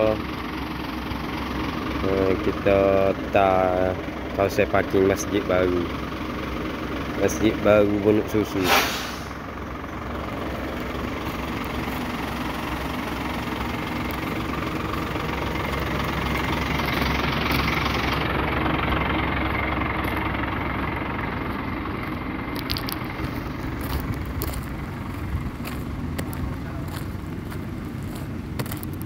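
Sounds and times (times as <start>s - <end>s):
diesel truck engine idling: 0.0s - 29.0s.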